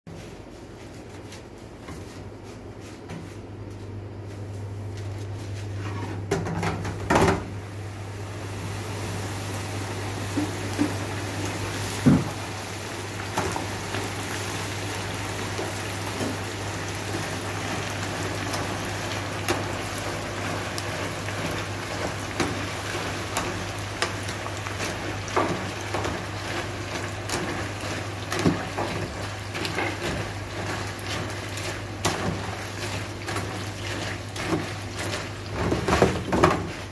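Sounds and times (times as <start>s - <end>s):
hot oil sizzling and bubbling: 8.1s - 36.9s.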